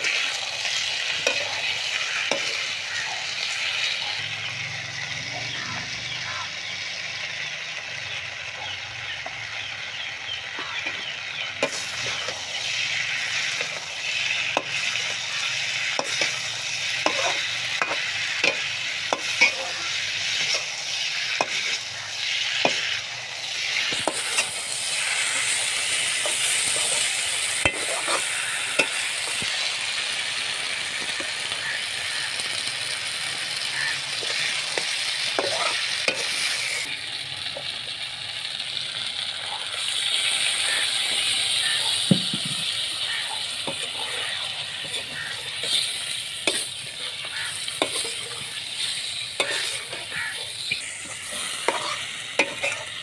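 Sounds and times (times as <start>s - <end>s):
potatoes sizzling in hot oil: 0.0s - 53.0s
metal spatula scraping pan: 11.6s - 21.9s, 23.6s - 29.4s, 34.2s - 36.8s, 43.2s - 53.0s.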